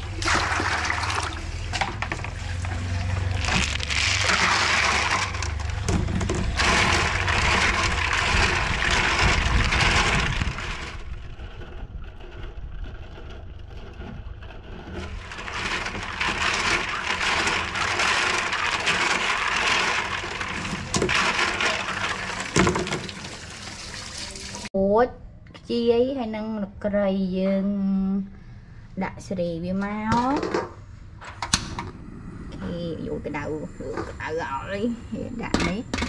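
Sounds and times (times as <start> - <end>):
snail shells clattering on metal bowl: 1.9 - 23.1
water splashing: 15.2 - 24.7.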